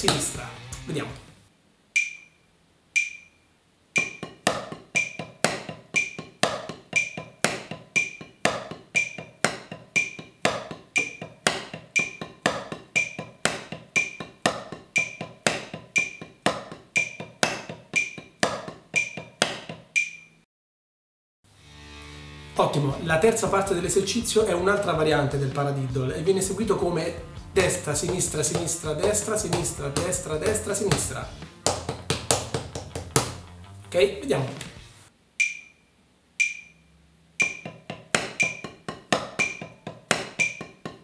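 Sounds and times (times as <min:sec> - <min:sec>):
drumsticks on practice pad: 0:02.0 - 0:02.4, 0:03.0 - 0:03.4, 0:04.0 - 0:20.4, 0:27.6 - 0:33.4, 0:35.4 - 0:35.8, 0:36.4 - 0:41.0
metronome ticking: 0:02.0 - 0:02.4, 0:03.0 - 0:20.4, 0:26.2 - 0:33.2, 0:35.4 - 0:41.0.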